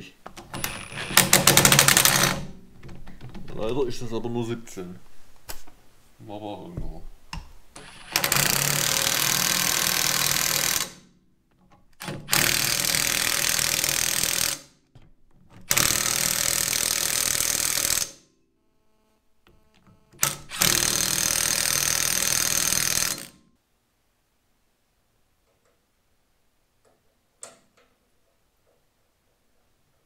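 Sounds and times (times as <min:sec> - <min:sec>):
impact wrench hammering: 0:00.5 - 0:02.6.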